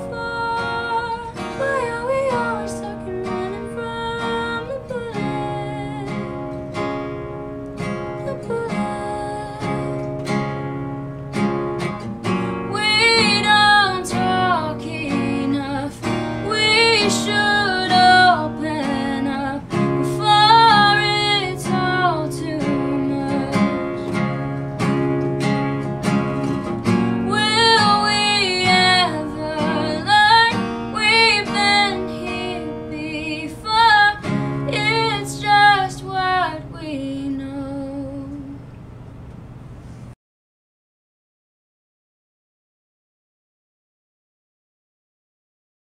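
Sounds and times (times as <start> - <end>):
woman singing: 0.0 - 6.5, 8.2 - 10.2, 12.5 - 24.3, 27.2 - 38.6
strummed acoustic guitar: 0.0 - 38.4.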